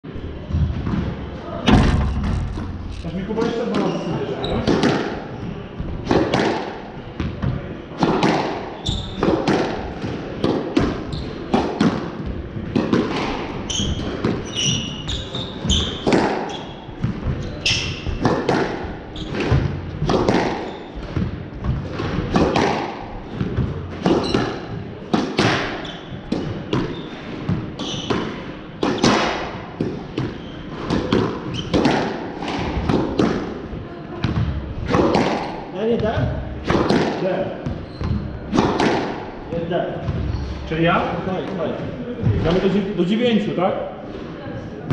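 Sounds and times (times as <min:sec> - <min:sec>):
squash ball knocks: 0:01.6 - 0:04.0
shoes squeaking on wooden floor: 0:02.1 - 0:04.7, 0:08.8 - 0:09.2, 0:13.6 - 0:18.2, 0:19.1 - 0:19.6, 0:25.8 - 0:28.2, 0:30.2 - 0:31.8, 0:37.7 - 0:38.5.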